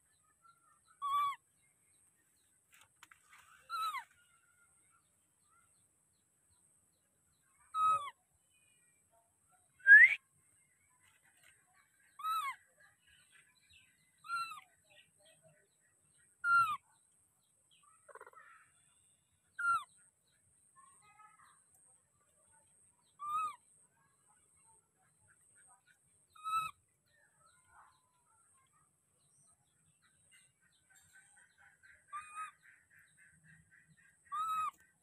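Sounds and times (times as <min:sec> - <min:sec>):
baby monkey crying: 0:01.0 - 0:01.4, 0:34.3 - 0:34.8.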